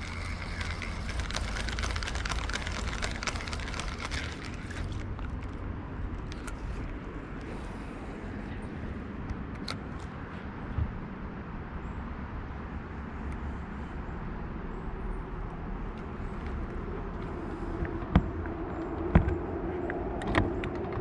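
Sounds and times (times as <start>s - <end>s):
fishing reel ticking and whirring: 0.0s - 5.6s, 6.2s - 6.8s
low steady rumble: 0.0s - 9.5s.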